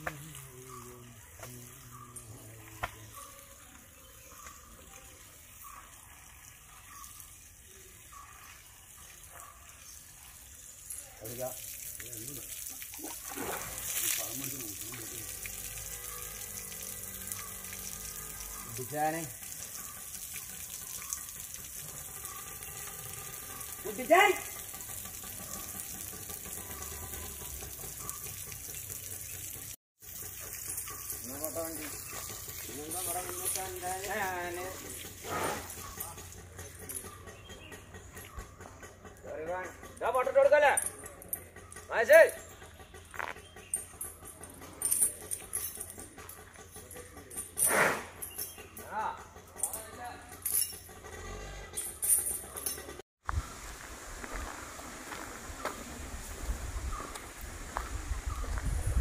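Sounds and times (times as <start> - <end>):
running water rushing: 0.0 - 36.3.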